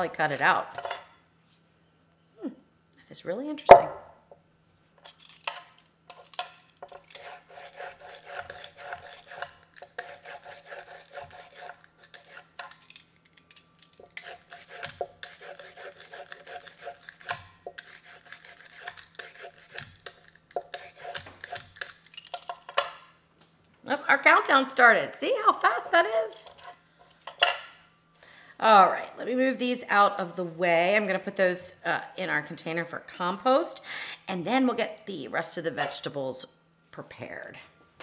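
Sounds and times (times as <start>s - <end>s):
peeler scraping carrots: 6.2s - 22.8s.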